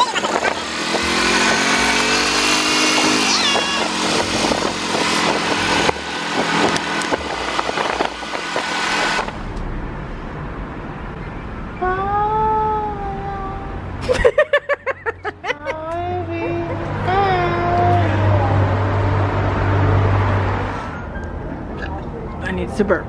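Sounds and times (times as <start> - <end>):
wind noise: 0.0 - 11.8
passing vehicle engine: 0.0 - 23.0
street traffic: 0.0 - 23.0.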